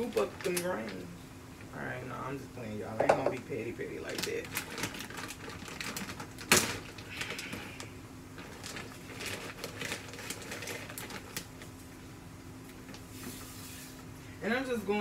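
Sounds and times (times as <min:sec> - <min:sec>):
plastic bag crinkling: 0:00.0 - 0:01.0, 0:04.0 - 0:11.8
steady low hum: 0:00.0 - 0:15.0.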